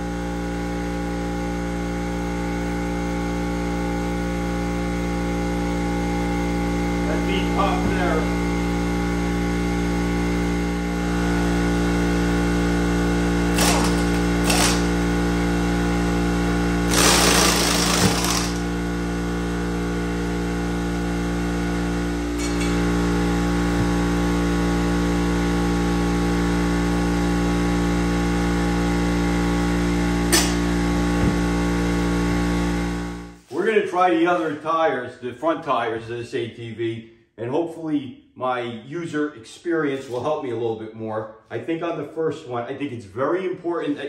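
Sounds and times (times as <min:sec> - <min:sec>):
steady hum: 0:05.3 - 0:25.6
air impact wrench hammering: 0:13.5 - 0:15.0, 0:16.9 - 0:18.7, 0:30.3 - 0:30.7.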